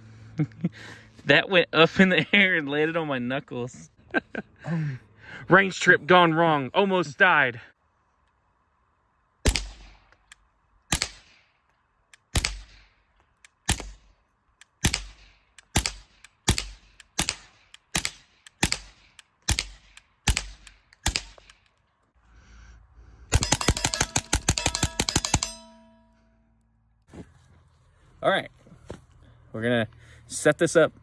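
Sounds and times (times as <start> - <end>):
suppressed pistol shots: 9.4 - 10.0, 10.9 - 11.4, 12.2 - 12.9, 13.6 - 14.1, 14.8 - 21.6, 23.3 - 25.5.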